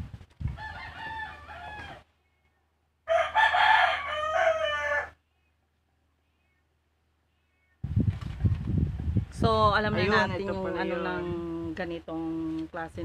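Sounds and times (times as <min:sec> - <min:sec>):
rooster crowing: 0:00.6 - 0:02.1, 0:03.0 - 0:05.2.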